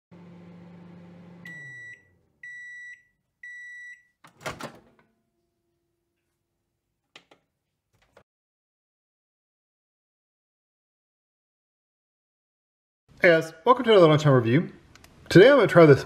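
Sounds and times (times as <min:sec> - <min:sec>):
microwave oven humming: 0:00.1 - 0:02.7
microwave beeps: 0:01.2 - 0:04.2.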